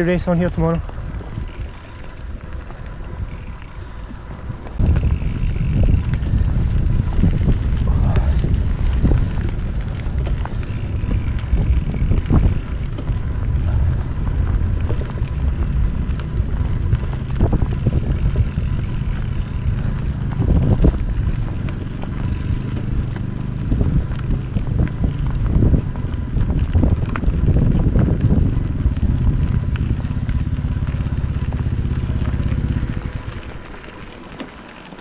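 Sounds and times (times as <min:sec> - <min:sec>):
tyre and wind noise: 0:00.0 - 0:35.0
bike knocks and rattles: 0:00.1 - 0:35.0.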